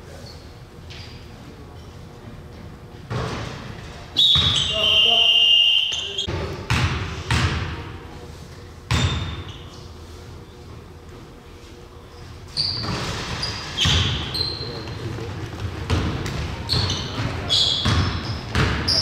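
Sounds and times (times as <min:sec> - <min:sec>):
shoe squeaks: 0:04.2 - 0:06.3, 0:08.9 - 0:10.0, 0:12.1 - 0:15.0, 0:16.6 - 0:19.0
basketball bouncing on gym floor: 0:06.3 - 0:07.9, 0:08.9 - 0:09.6, 0:12.7 - 0:19.0.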